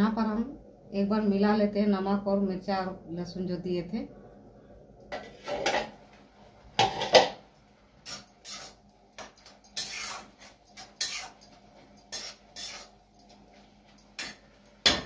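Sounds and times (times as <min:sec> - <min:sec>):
spoon scraping and clinking in pan: 0:08.0 - 0:14.5.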